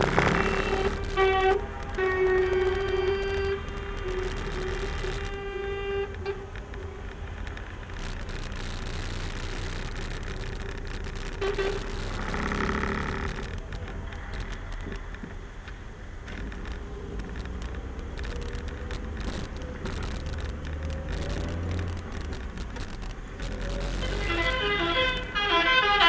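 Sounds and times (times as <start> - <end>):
vehicle horn: 0.0 - 6.5, 11.3 - 13.4, 23.9 - 26.0
vehicle engine and road rumble: 0.0 - 26.0.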